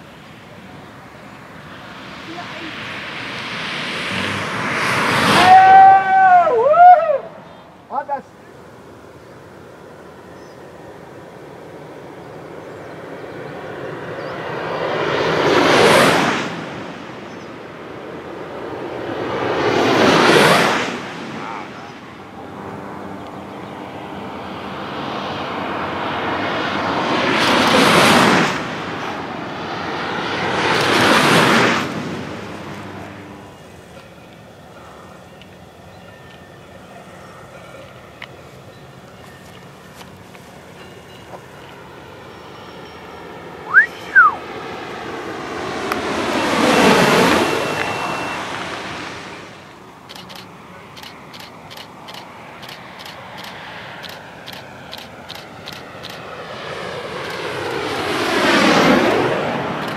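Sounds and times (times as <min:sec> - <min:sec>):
rush of air passing: 0:01.5 - 0:07.4, 0:13.0 - 0:33.8, 0:43.6 - 0:50.1
person whistling: 0:43.7 - 0:44.4
wingsuit whooshing past: 0:43.7 - 0:49.7.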